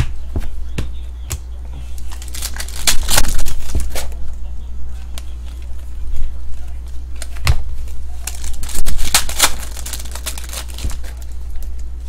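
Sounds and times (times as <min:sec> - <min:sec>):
steady low hum: 0:00.0 - 0:12.0
cards clicking and rustling: 0:01.9 - 0:04.2, 0:08.2 - 0:11.9.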